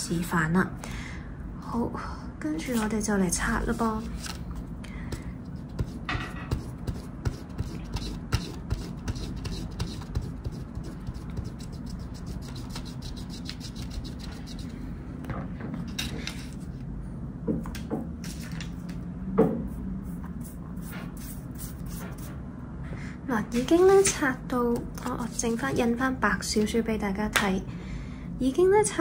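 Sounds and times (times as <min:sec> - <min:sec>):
eraser scratching on paper: 0:05.5 - 0:14.7, 0:20.0 - 0:22.3.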